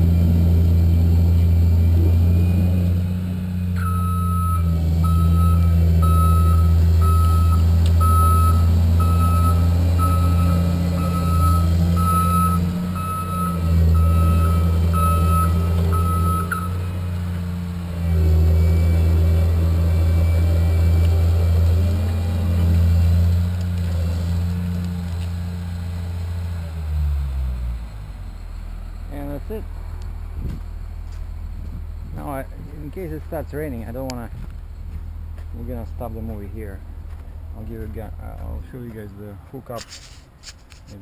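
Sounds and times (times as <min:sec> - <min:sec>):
large engine running: 0:00.0 - 0:39.1
back-up alarm beeping: 0:03.8 - 0:16.9.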